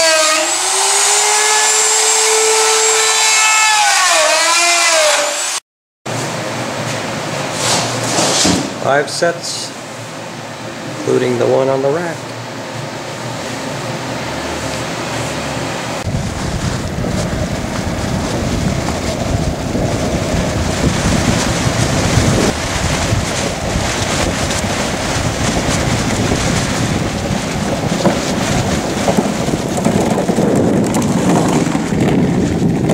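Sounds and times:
wind buffeting microphone: 16.0s - 32.9s.

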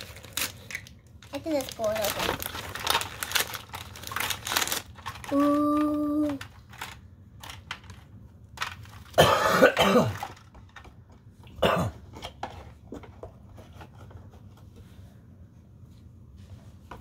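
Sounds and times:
person coughing: 9.2s - 10.2s, 11.6s - 12.0s.

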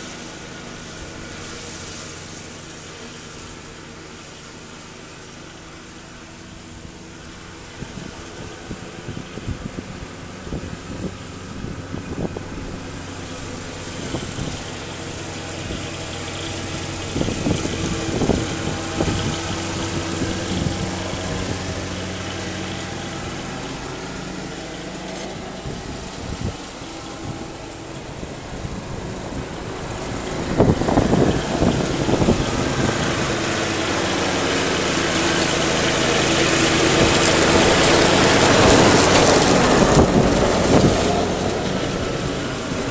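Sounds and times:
riding lawn mower engine: 0.0s - 42.9s.

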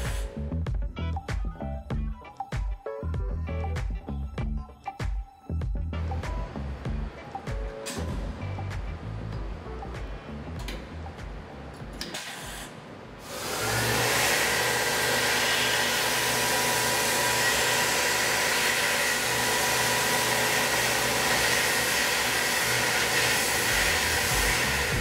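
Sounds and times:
coolant nozzle hiss: 0.0s - 0.4s, 20.8s - 25.0s
milling machine whine: 12.0s - 25.0s.

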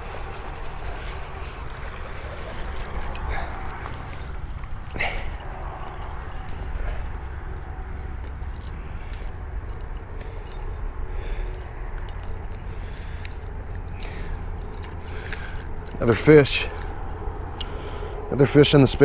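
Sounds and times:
fishing lure metallic clinks: 3.2s - 17.8s.

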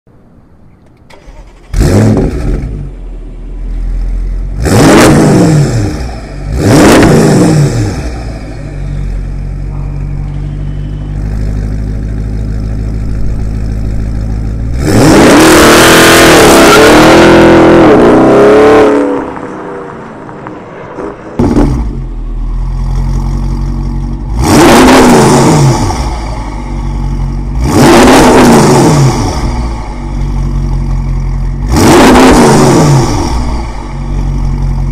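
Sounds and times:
engine starting: 0.9s - 2.4s
engine revving and idling: 1.1s - 34.9s.

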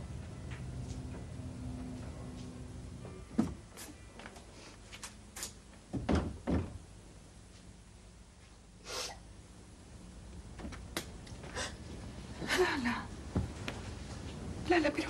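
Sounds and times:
door thumps: 5.9s - 6.8s.

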